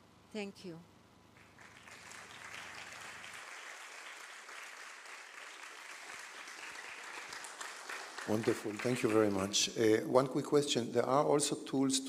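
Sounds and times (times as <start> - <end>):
audience applauding: 1.4 - 9.6.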